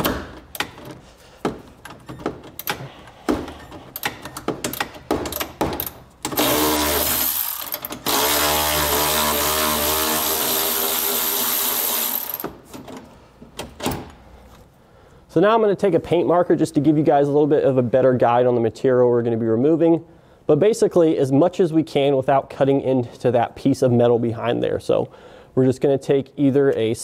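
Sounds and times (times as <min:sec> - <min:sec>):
tool clicks and knocks: 0:00.0 - 0:06.5
electric ratchet motor whine: 0:06.4 - 0:12.4.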